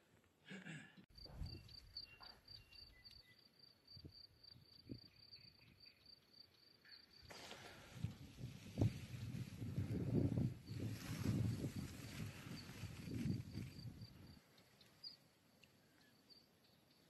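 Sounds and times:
cricket chirring: 1.2 - 7.8, 10.6 - 17.0.

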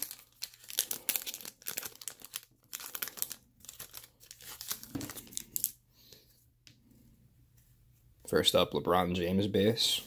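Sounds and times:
foil wrapper crinkling: 0.0 - 5.8.

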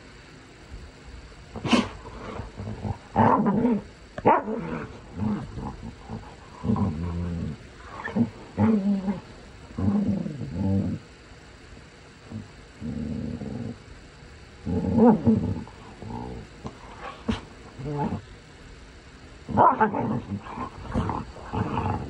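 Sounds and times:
dogs growling and snarling: 1.5 - 11.2, 12.3 - 13.9, 14.6 - 18.3, 19.5 - 22.0.

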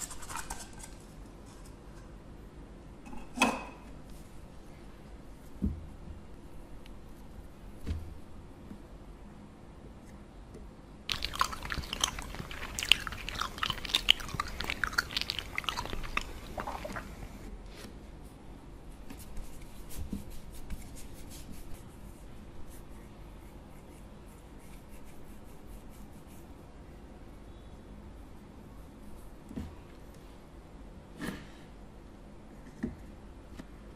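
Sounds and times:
modelling dough crackling: 11.1 - 17.5.

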